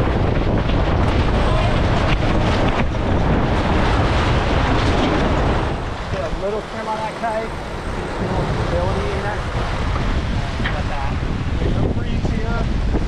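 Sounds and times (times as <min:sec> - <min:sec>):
water rushing along a hull: 0:00.0 - 0:13.0
wind buffeting the microphone: 0:00.0 - 0:13.0.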